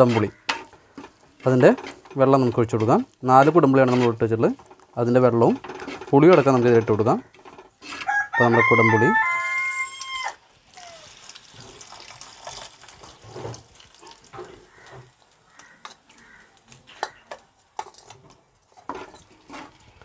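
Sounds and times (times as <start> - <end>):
water pouring into a pot: 10.0 - 15.2.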